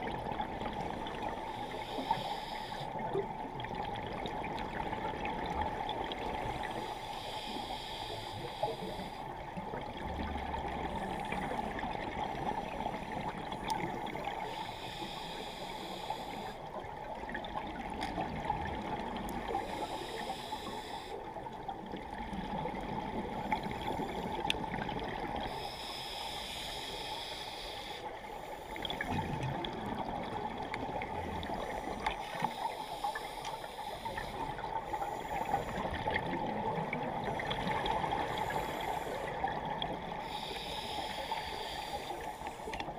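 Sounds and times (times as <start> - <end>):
steady underwater hiss: 0.0 - 42.9
faint clicks: 24.4 - 24.6, 33.4 - 33.7, 42.3 - 42.9.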